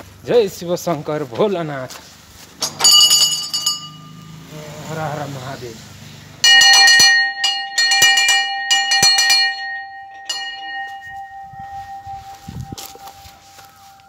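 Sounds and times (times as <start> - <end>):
brass bell clanging: 2.6 - 4.5, 6.4 - 14.0.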